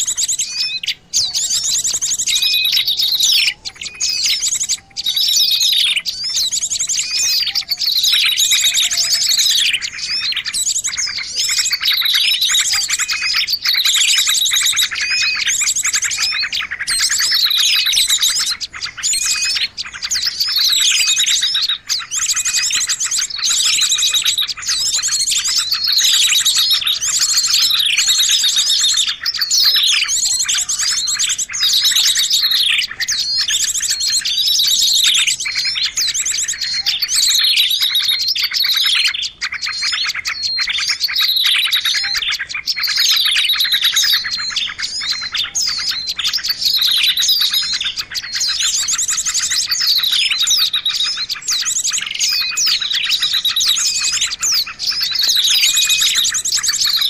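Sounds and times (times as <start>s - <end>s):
falling bird call: 0.0s - 57.0s
songbirds chirping and trilling: 0.0s - 57.0s.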